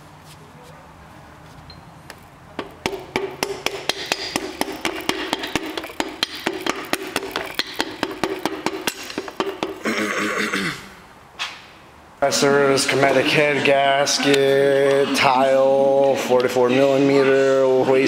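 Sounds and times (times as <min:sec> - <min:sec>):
rapid light tapping with ringing: 0:02.6 - 0:09.8.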